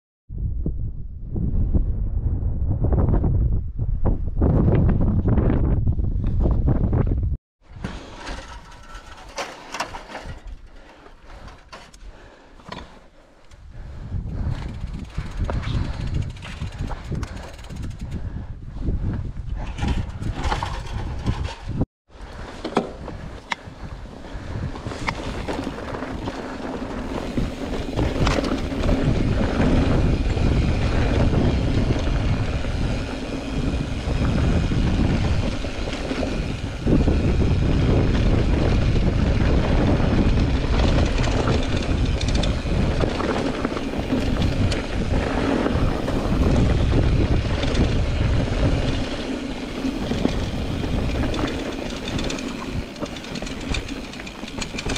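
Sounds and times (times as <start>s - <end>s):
wind buffeting microphone: 0.3s - 7.4s, 13.6s - 54.9s
tyres rolling on rough ground: 7.7s - 12.0s, 24.6s - 54.9s
bike clicks and rattles: 7.7s - 54.9s.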